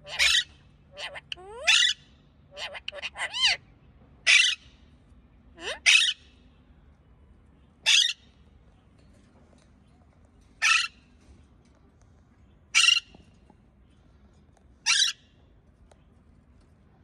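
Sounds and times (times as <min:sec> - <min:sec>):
parakeet screeching calls: 0:00.0 - 0:03.6, 0:04.3 - 0:04.6, 0:05.6 - 0:06.2, 0:07.9 - 0:08.2, 0:10.6 - 0:10.9, 0:12.8 - 0:13.1, 0:14.8 - 0:15.2.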